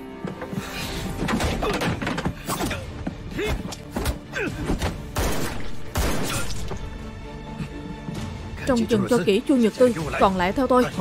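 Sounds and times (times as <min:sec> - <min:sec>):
background music: 0:00.0 - 0:11.0
men grunting: 0:01.4 - 0:04.8.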